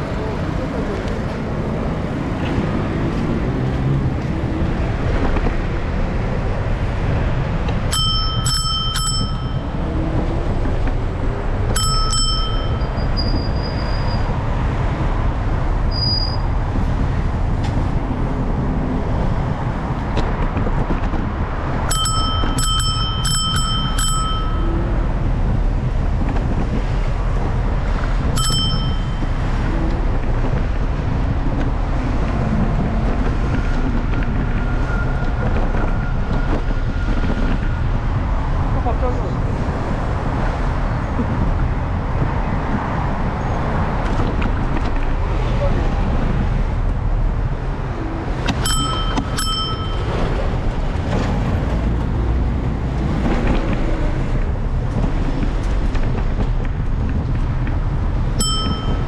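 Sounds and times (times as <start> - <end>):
traffic: 0.0 - 59.0
wind noise: 0.0 - 59.0
bicycle bell dings: 7.9 - 9.8, 11.8 - 13.2, 21.9 - 24.8, 28.4 - 29.4, 48.6 - 50.3, 58.4 - 59.0.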